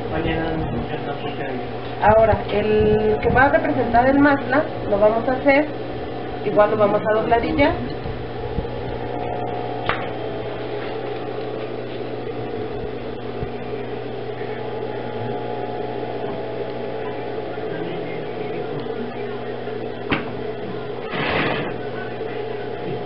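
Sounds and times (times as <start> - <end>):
sewing machine motor humming: 6.4 - 22.2.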